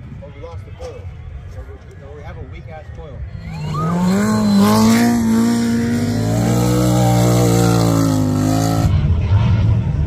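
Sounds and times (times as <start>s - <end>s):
utility vehicle engine at high revs: 3.5s - 10.0s.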